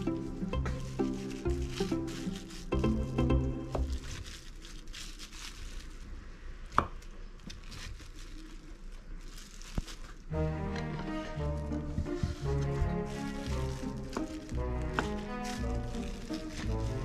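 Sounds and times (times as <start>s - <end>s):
background music: 0.0s - 4.1s, 10.3s - 17.0s
cling film crinkling: 0.0s - 6.4s, 7.3s - 17.0s.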